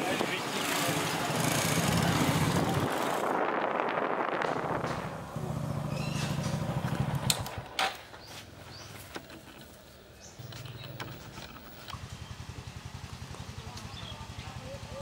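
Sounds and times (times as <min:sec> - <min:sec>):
motorcycle engine running: 0:03.9 - 0:07.7, 0:10.4 - 0:15.0.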